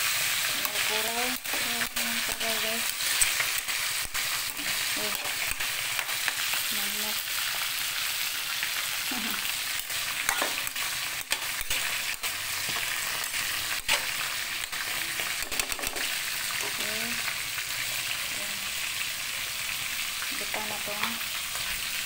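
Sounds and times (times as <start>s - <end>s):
vegetables sizzling in a wok: 0.0s - 22.0s
spatula scraping and knocking pan: 10.2s - 12.0s.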